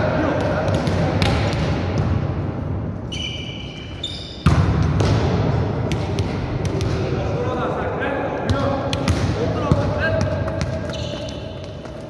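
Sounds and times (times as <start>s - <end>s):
volleyballs struck and bouncing: 0.2s - 2.5s, 4.3s - 7.3s, 8.4s - 12.0s
high squeak: 3.1s - 4.4s.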